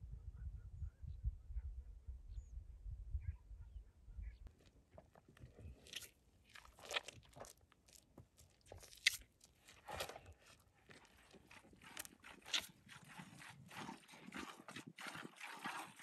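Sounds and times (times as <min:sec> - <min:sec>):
calf sucking and slurping: 0:05.4 - 0:16.0.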